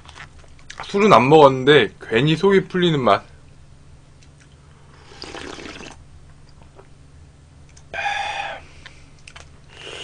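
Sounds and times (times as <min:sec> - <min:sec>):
slurping soup: 0:05.0 - 0:06.0.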